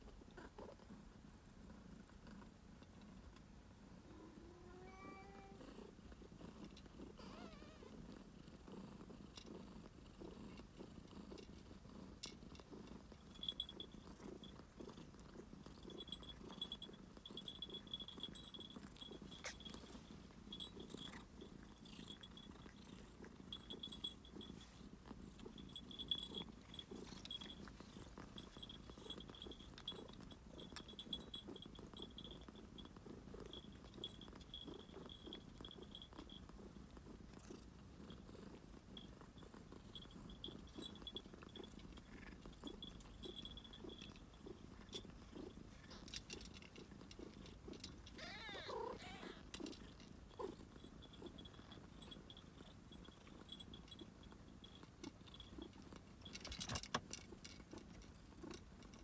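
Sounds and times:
cat purring: 0.0 - 59.0
faint high-pitched tone: 4.1 - 5.7.

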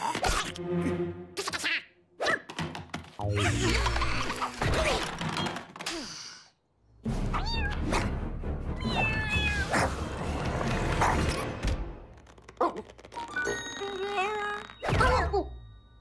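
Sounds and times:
cartoon kitten meowing: 8.8 - 9.7.

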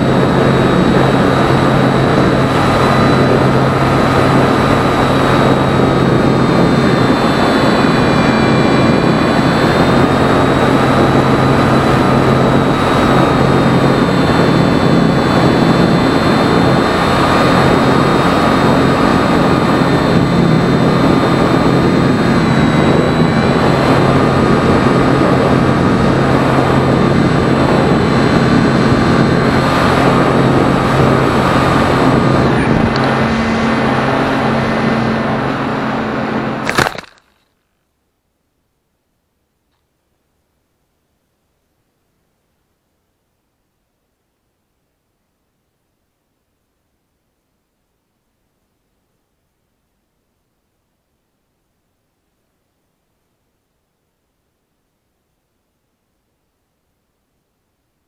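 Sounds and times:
wind rush over microphone: 0.0 - 36.7
electric motor and propeller whining: 0.0 - 37.2.

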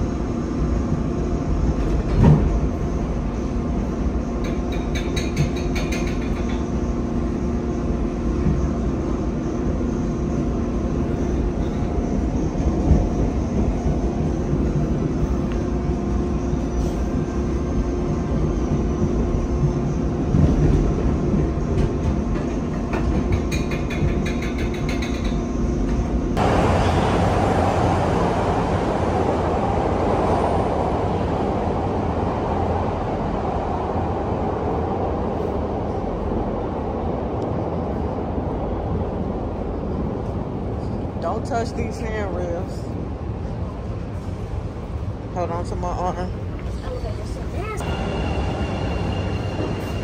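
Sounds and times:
rail clicks: 4.2 - 6.8, 11.2 - 27.8.

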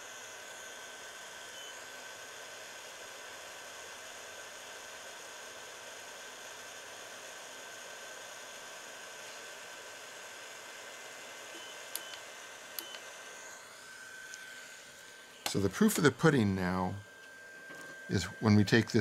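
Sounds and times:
dental curing light hissing: 0.0 - 19.0
thin high whine: 11.5 - 19.0.

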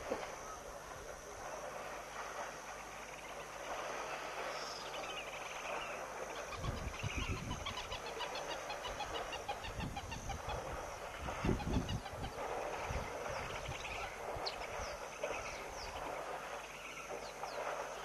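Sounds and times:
birds calling: 4.4 - 18.0.

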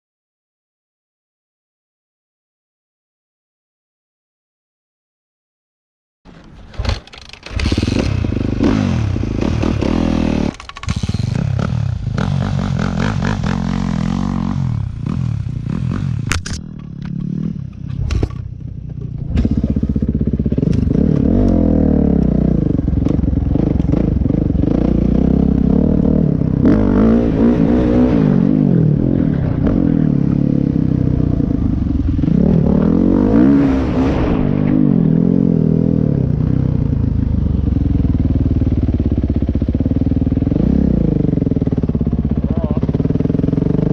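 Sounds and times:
dirt bike engine revving: 6.7 - 36.8.

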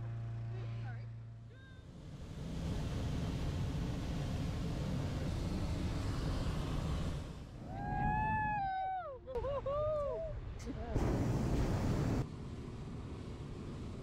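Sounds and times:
propane burner roar: 0.0 - 8.4.

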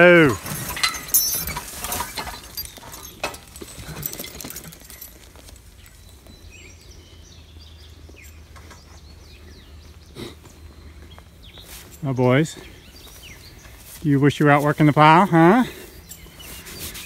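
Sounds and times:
faint birds chirping: 0.0 - 17.0
quiet field ambience: 0.0 - 17.0
knocks and rustles: 0.3 - 6.0.

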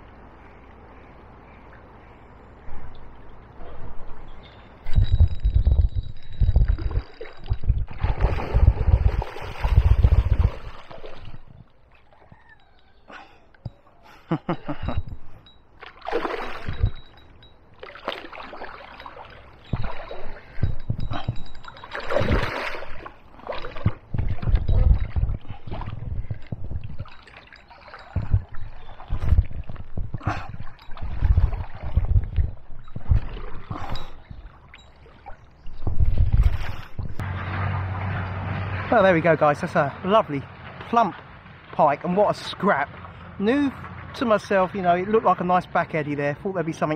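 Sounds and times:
wind buffeting microphone: 2.6 - 12.6, 14.6 - 17.7, 19.3 - 41.6
fish splashing at surface: 15.8 - 17.1.

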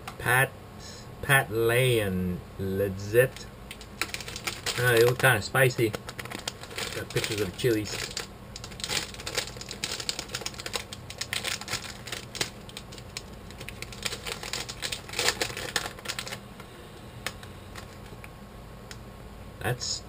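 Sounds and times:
plastic snack bag crinkling: 3.7 - 16.4, 17.2 - 18.2.

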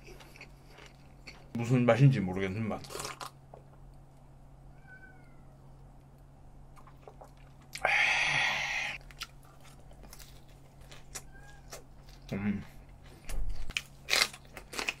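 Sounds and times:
man exhaling breathy haa: 7.8 - 9.0.

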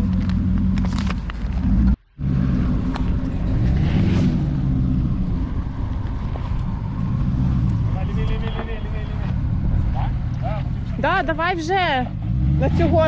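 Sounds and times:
car engine running at low revs: 0.0 - 13.0.

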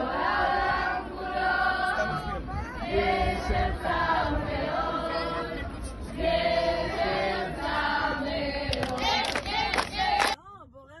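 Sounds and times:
crowd singing in chorus: 0.0 - 10.4.

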